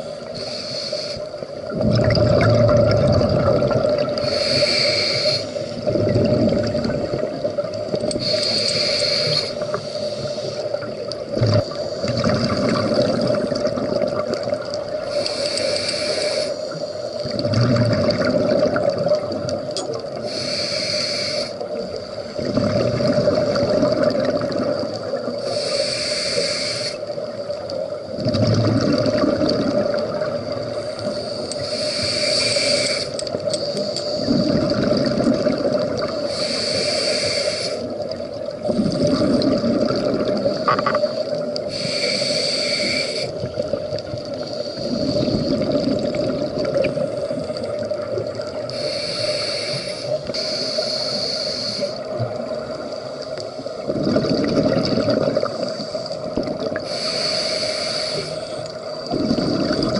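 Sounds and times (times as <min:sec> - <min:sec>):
diver inhaling through regulator: 0:00.0 - 0:01.4, 0:04.0 - 0:05.9, 0:08.2 - 0:10.8, 0:15.1 - 0:17.2, 0:20.2 - 0:21.6, 0:25.4 - 0:27.1, 0:30.6 - 0:34.8, 0:36.1 - 0:38.0, 0:40.7 - 0:43.4, 0:44.5 - 0:45.9, 0:48.7 - 0:52.2, 0:55.3 - 0:59.9
exhaled bubbles rushing: 0:01.6 - 0:04.3, 0:05.8 - 0:08.2, 0:10.8 - 0:15.0, 0:17.2 - 0:19.6, 0:22.4 - 0:25.4, 0:28.1 - 0:30.8, 0:34.2 - 0:36.3, 0:38.0 - 0:41.6, 0:43.4 - 0:48.7, 0:53.8 - 0:56.8, 0:58.9 - 0:59.9.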